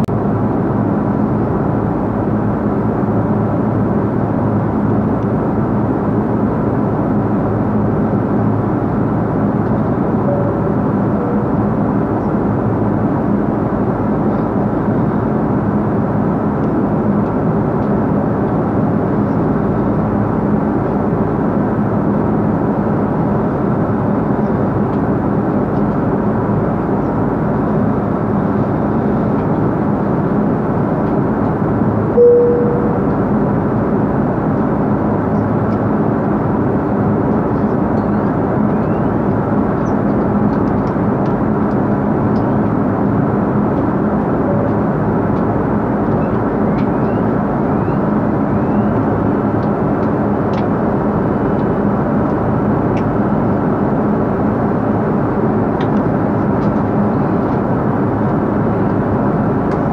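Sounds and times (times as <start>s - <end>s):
airliner cabin engine rush: 0.0s - 59.9s
faint steady hum: 0.0s - 59.9s
brief tone: 10.3s - 10.6s, 32.1s - 33.2s.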